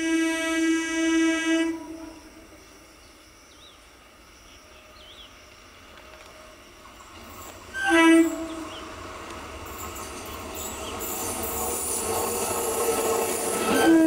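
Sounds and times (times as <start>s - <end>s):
train horn blast: 0.0s - 2.5s, 7.7s - 8.8s, 13.5s - 14.0s
train rumble: 0.0s - 14.0s.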